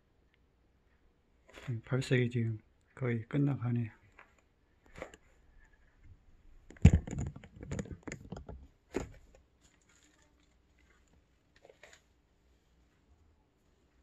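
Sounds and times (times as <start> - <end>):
handling thump: 6.7 - 9.4.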